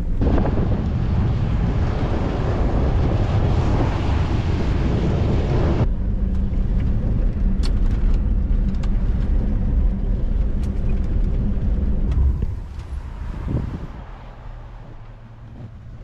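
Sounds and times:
vehicle rumble on dirt: 0.0s - 16.0s
wind buffeting microphone: 0.0s - 16.0s
gravel clicks and rattles: 5.8s - 13.2s.

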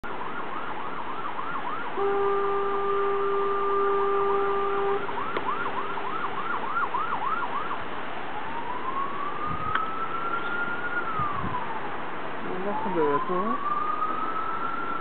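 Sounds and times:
siren yelping: 0.2s - 7.8s, 8.4s - 15.0s
horn blaring: 2.0s - 6.1s.

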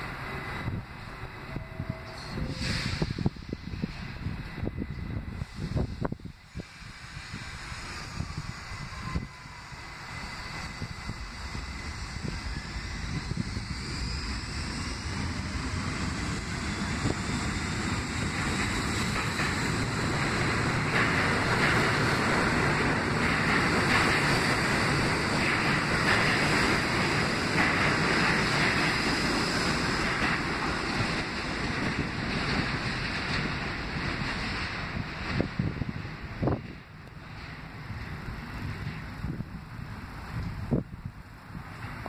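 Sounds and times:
subway train wheels on track: 0.0s - 42.0s.

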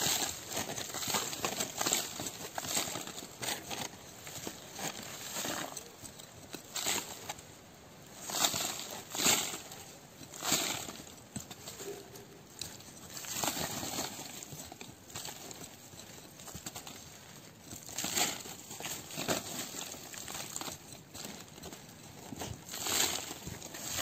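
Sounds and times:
dry leaves crackling: 0.0s - 24.0s.

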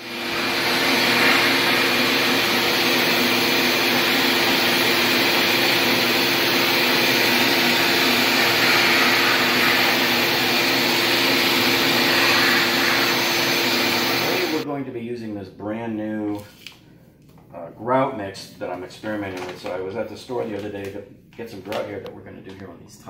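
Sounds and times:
vacuum cleaner humming: 0.0s - 14.7s.

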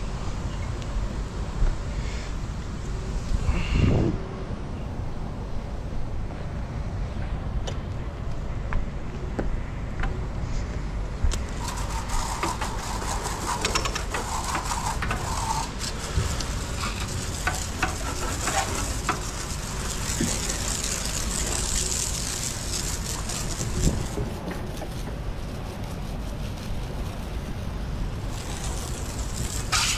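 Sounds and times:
hose spray hissing on deck: 11.4s - 29.9s.

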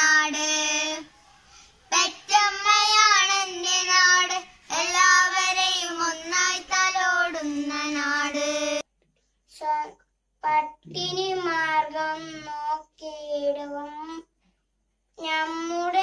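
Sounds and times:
children singing: 1.9s - 8.8s.

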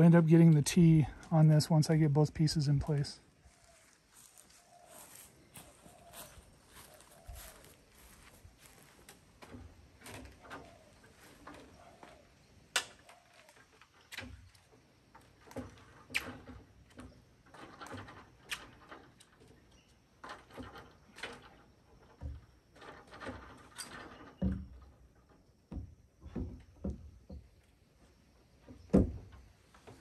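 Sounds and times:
tools and timber knocking: 22.1s - 27.6s
dull thumps: 28.6s - 30.0s.

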